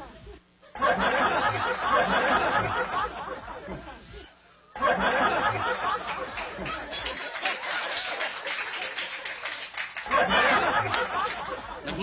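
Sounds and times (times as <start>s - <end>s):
audience laughing: 0.6s - 12.0s
audience clapping: 5.9s - 11.6s.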